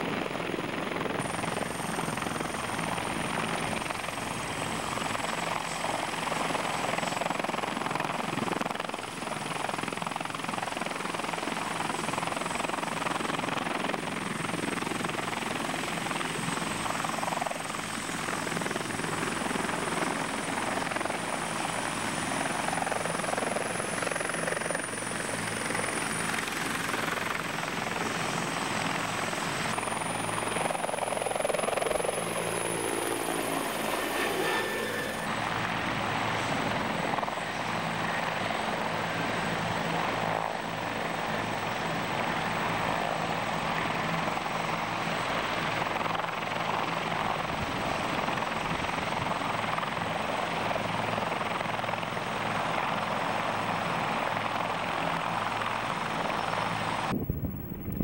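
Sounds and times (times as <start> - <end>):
helicopter rotor beat: 0.0 - 58.0
high turbine whine: 12.6 - 39.1, 54.3 - 58.0.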